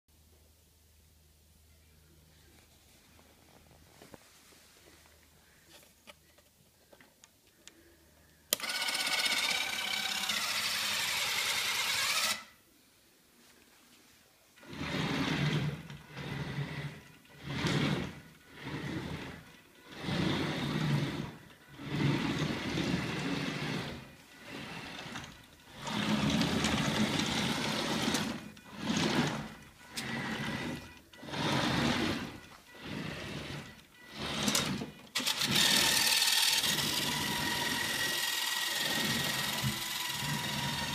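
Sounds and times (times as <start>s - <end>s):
robot drive motors whirring: 8.5s - 12.5s, 14.6s - 40.9s.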